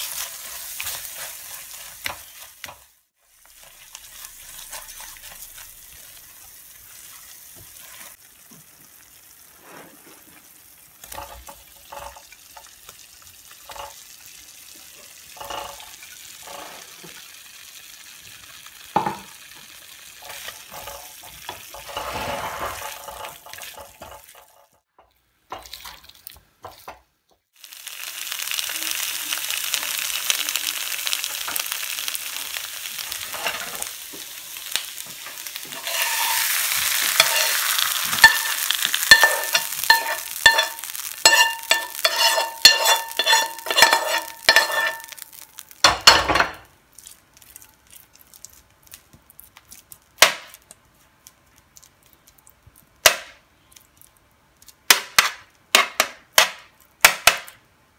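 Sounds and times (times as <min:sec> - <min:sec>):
metal spoon scraping a pan: 0:00.0 - 0:02.9, 0:03.5 - 0:06.3, 0:11.0 - 0:12.3, 0:15.3 - 0:17.1, 0:20.2 - 0:24.7, 0:33.1 - 0:33.9, 0:35.3 - 0:45.4
potatoes sizzling in a pan: 0:00.0 - 0:24.7, 0:27.6 - 0:50.8.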